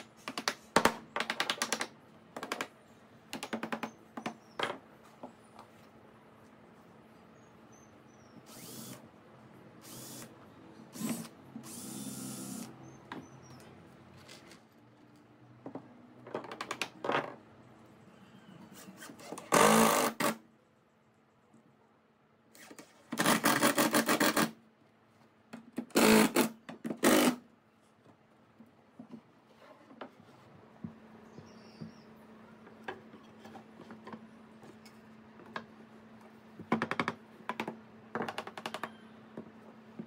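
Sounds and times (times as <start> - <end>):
cordless drill driving screws: 8.5 - 9.0, 9.8 - 10.3, 10.9 - 12.7.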